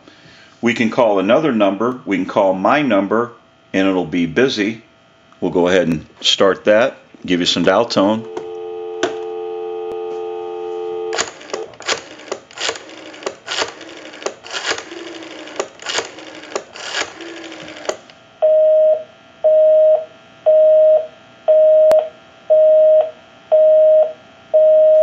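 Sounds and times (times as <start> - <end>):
busy signal beeps: 8.2 - 11.2, 18.4 - 25.0
rotary dial clicking: 11.2 - 18.2.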